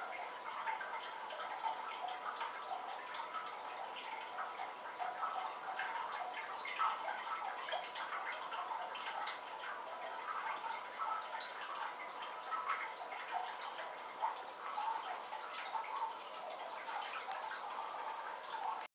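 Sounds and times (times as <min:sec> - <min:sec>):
water dripping on leaves: 0:13.8 - 0:18.9.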